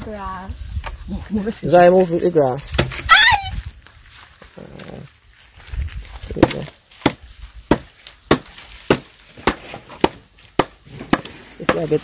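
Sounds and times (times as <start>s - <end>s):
blade chopping firewood: 2.6s - 3.1s, 6.3s - 12.0s.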